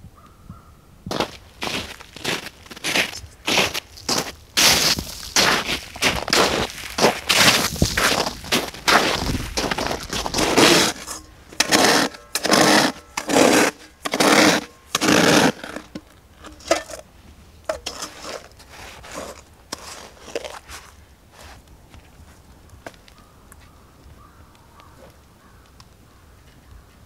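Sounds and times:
metal bowl scraping through snow: 1.6s - 17.1s, 17.7s - 21.6s.

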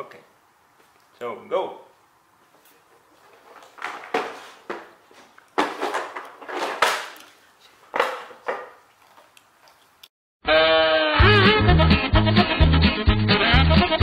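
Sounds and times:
puzzle pieces scuffing on floor: 2.5s - 8.8s.

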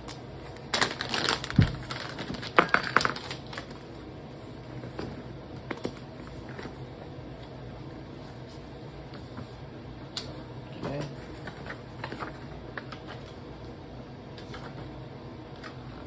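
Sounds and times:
plastic packaging crinkling: 0.0s - 3.8s.

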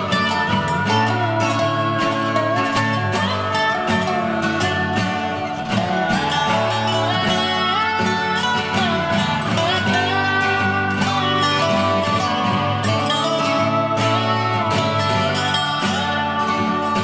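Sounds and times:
guitar background music: 0.0s - 17.0s.

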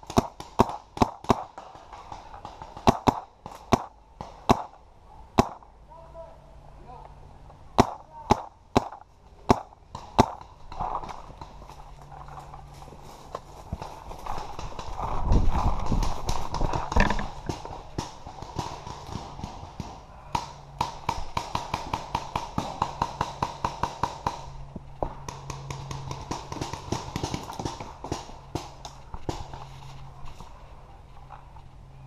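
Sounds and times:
rustling and knocking: 13.3s - 17.7s
paintball markers firing: 14.3s - 29.6s.

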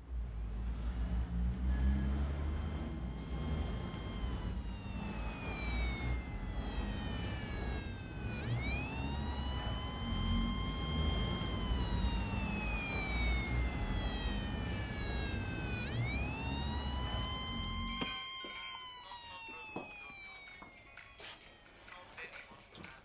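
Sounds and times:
low steady rumble: 0.0s - 18.0s
wailing siren: 0.0s - 22.3s.

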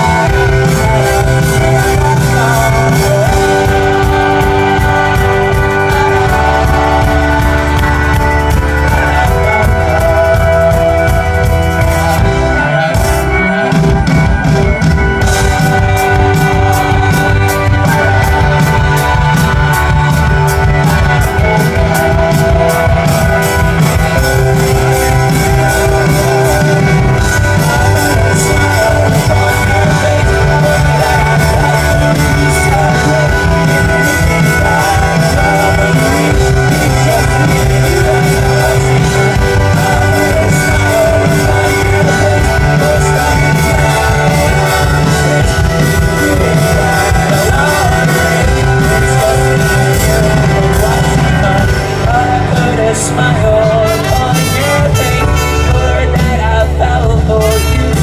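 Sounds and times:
drums: 0.0s - 58.0s
keyboards: 0.0s - 58.0s
person singing: 0.0s - 58.0s.

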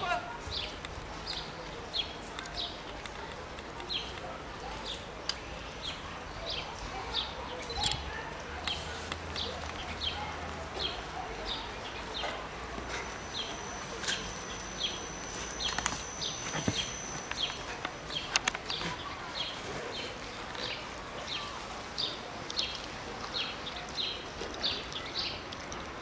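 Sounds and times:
small bird calling: 12.9s - 19.5s.

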